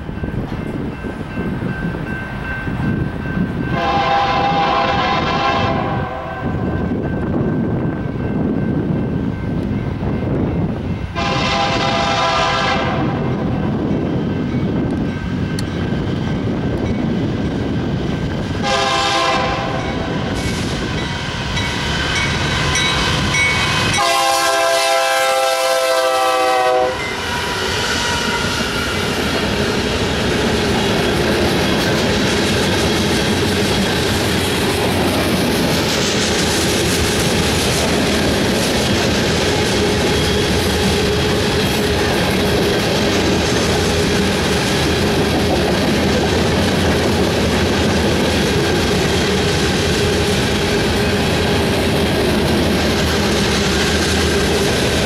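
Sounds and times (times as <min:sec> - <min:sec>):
train wheels clattering and rumbling: 0:00.0 - 0:55.0
locomotive horn blasts: 0:03.7 - 0:06.6, 0:11.2 - 0:13.2, 0:18.6 - 0:20.0, 0:23.9 - 0:27.2
locomotives passing: 0:26.8 - 0:55.0.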